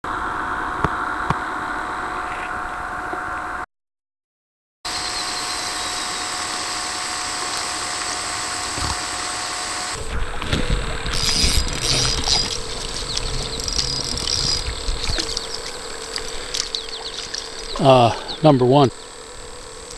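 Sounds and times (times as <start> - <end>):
knocks and splashing: 10.0 - 17.8.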